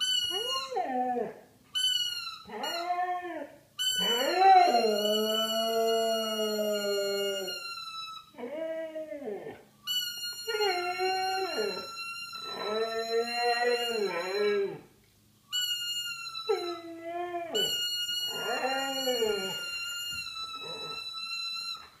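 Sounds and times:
toy trumpet tone: 0:00.0 - 0:00.7, 0:01.8 - 0:03.0, 0:03.8 - 0:08.3, 0:09.8 - 0:14.7, 0:15.5 - 0:16.8, 0:17.6 - 0:22.0
dog howling: 0:02.5 - 0:09.6, 0:10.5 - 0:14.9, 0:16.4 - 0:21.9.

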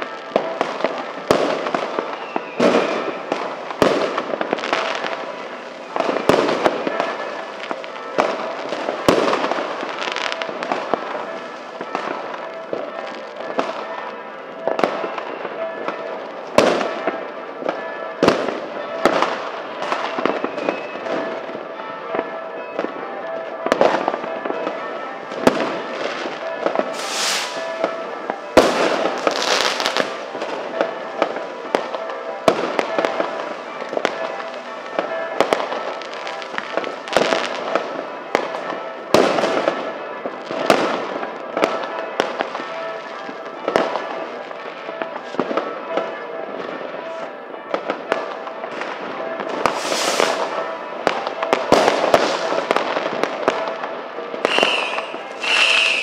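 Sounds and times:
firecracker bangs: 0:00.0 - 0:14.0, 0:14.6 - 0:43.0, 0:47.6 - 0:56.0
fireworks crackling: 0:00.0 - 0:56.0
hissing firework bursts: 0:26.9 - 0:27.7, 0:49.7 - 0:50.4, 0:54.5 - 0:56.0.

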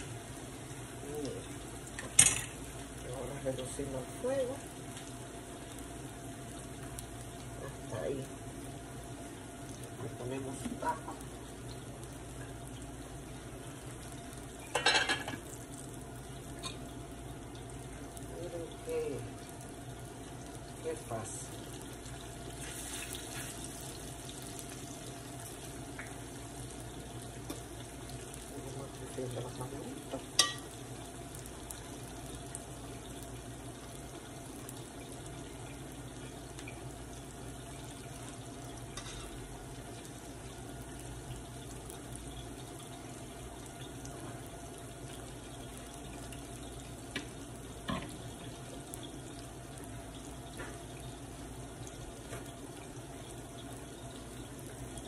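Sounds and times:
plantain sizzling in hot oil: 0:00.0 - 0:55.0.

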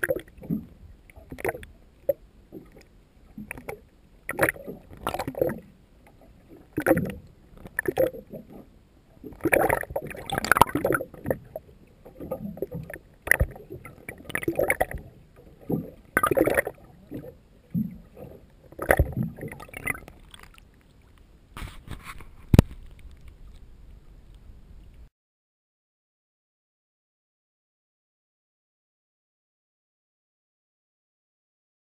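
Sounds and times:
water sloshing and gurgling: 0:00.0 - 0:25.1.

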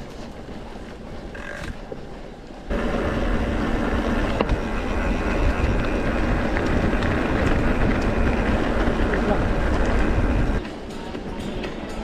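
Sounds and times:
bike tyres rumbling on dirt: 0:02.7 - 0:10.6
wind buffeting the microphone: 0:02.7 - 0:10.7.

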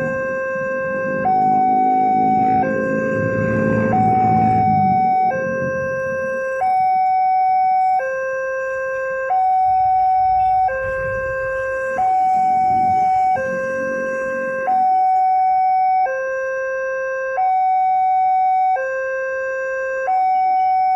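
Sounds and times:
level crossing alarm alternating tones: 0:00.0 - 0:20.9.

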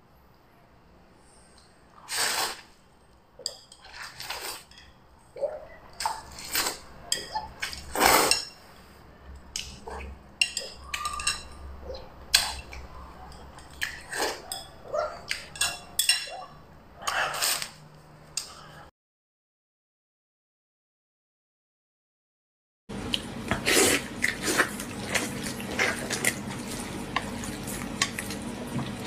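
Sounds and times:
chopsticks clinking on bowl: 0:10.4 - 0:11.6, 0:13.3 - 0:16.4
noodles slurped and chewed: 0:23.1 - 0:29.0.

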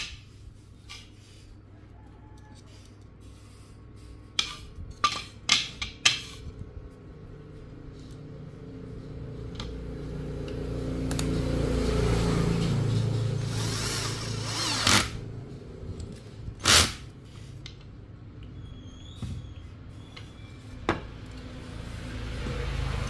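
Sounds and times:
electric screwdriver running: 0:13.4 - 0:15.2, 0:16.6 - 0:17.1.

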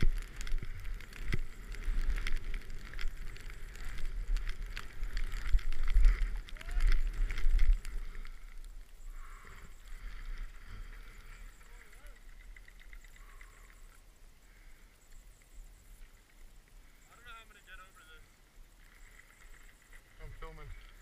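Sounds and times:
clicks and knocks from skis: 0:00.0 - 0:14.0.

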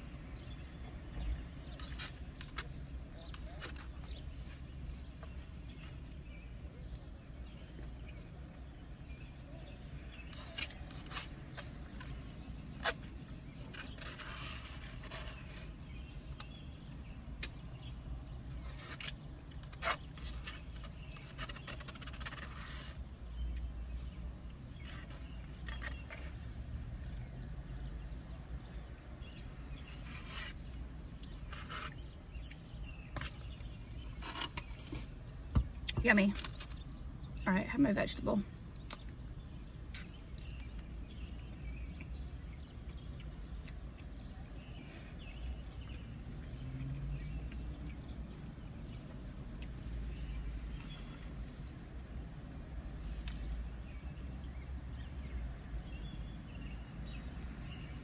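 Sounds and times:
plastic utensil scraping foam cup: 0:18.5 - 0:23.0, 0:33.1 - 0:35.4.

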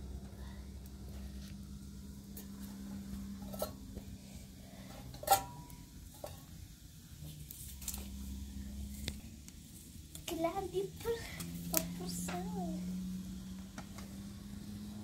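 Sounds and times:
metal teapot clinking: 0:03.3 - 0:04.0, 0:05.0 - 0:06.6.

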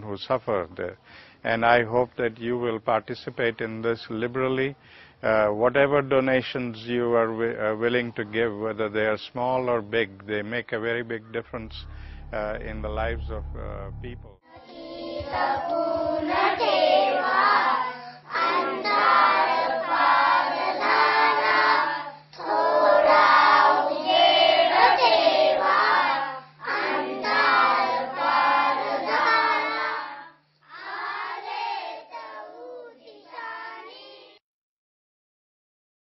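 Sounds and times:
steady low hum: 0:00.0 - 0:30.5
children singing together: 0:14.5 - 0:34.4.

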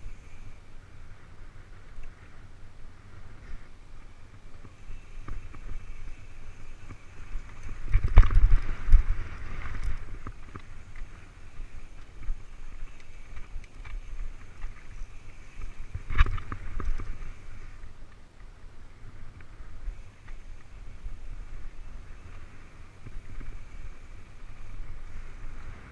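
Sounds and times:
tyre and trail noise: 0:00.0 - 0:25.9
wind rumble on microphone: 0:00.0 - 0:25.9
bike knocks and rattles: 0:04.5 - 0:17.5.

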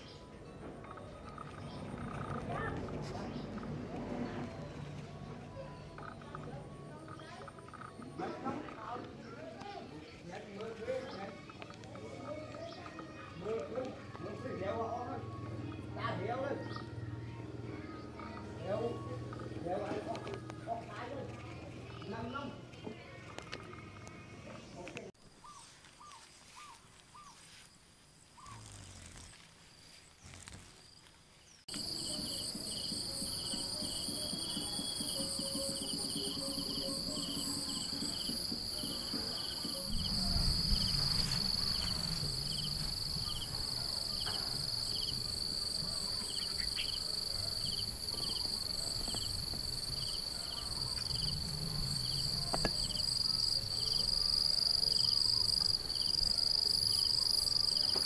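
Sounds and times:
insects trilling and chirping: 0:25.3 - 0:58.0
low rumble: 0:39.8 - 0:43.7.

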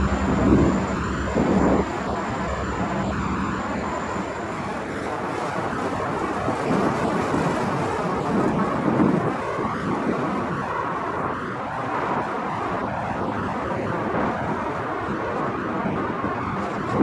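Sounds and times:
freight train wheels rumbling: 0:00.0 - 0:05.2.

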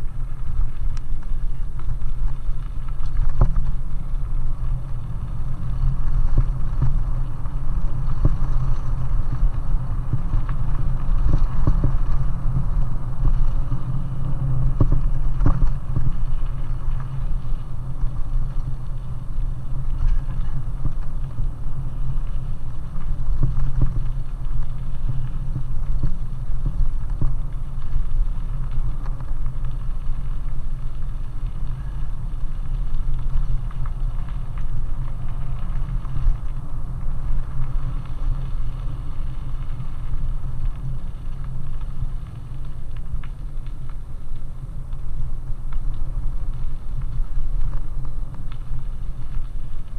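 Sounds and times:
bicycle tyres rolling on gravel: 0:00.0 - 0:49.9
wind rumble on microphone: 0:00.0 - 0:49.9.

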